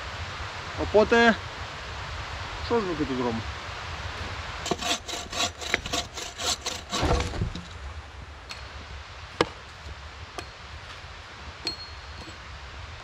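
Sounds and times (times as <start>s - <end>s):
bow saw cutting tree trunk: 4.6s - 7.9s
sharp knocks: 4.7s - 7.7s.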